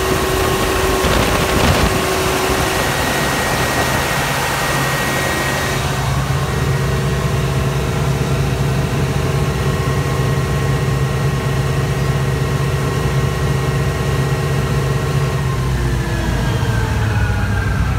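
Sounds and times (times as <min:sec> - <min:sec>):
diesel generator engine running: 0:00.0 - 0:17.9.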